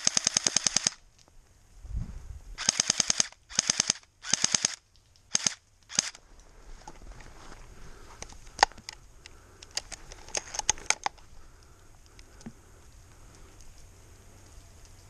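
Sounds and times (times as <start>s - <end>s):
airsoft gun automatic fire: 0.0s - 1.0s, 2.6s - 6.2s.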